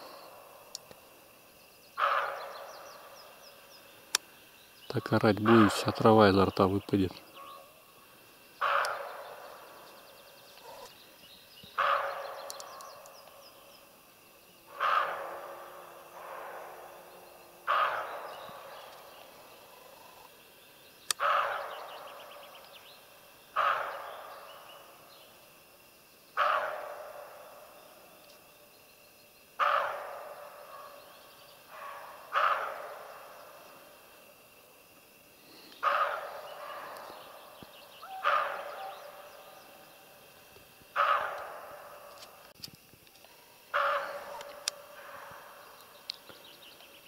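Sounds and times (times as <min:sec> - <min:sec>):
deer barking: 0:02.0 - 0:02.6, 0:08.6 - 0:09.4, 0:11.8 - 0:12.7, 0:14.7 - 0:18.7, 0:21.1 - 0:21.9, 0:23.6 - 0:24.2, 0:26.4 - 0:27.4, 0:29.6 - 0:31.0, 0:31.7 - 0:33.2, 0:35.8 - 0:37.3, 0:38.0 - 0:39.6, 0:41.0 - 0:42.0, 0:43.7 - 0:45.6.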